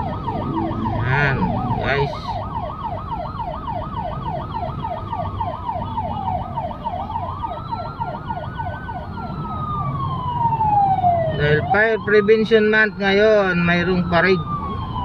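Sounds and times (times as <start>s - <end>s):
car engine and road rumble: 0.0s - 15.0s
siren fast yelp: 0.0s - 15.0s
siren slow wail: 0.0s - 15.0s.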